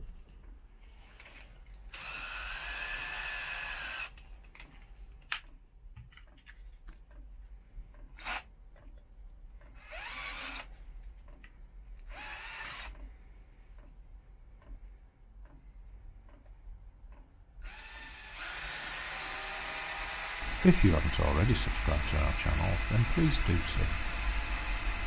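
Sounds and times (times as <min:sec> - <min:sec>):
cordless drill running: 0:01.9 - 0:04.2, 0:08.2 - 0:08.5, 0:09.7 - 0:10.8, 0:12.0 - 0:13.0, 0:17.5 - 0:25.0.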